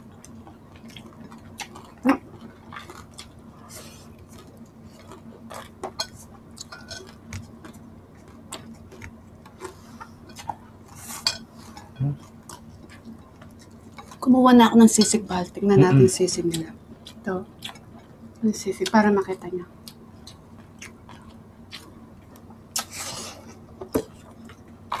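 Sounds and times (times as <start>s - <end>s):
faint steady hum: 0.0s - 25.0s
dishes and cutlery clinking: 5.9s - 7.2s.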